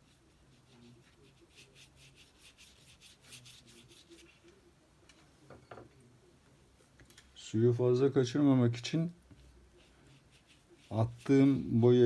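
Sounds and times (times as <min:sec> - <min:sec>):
brush scratching on paper: 0:00.0 - 0:04.6, 0:09.3 - 0:12.0.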